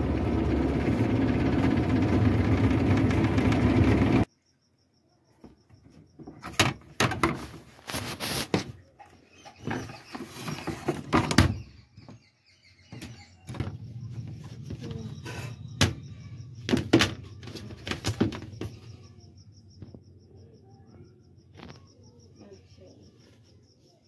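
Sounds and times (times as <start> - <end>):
plastic knocks and clatter: 5.8 - 7.6, 9.6 - 12.3, 16.6 - 19.0.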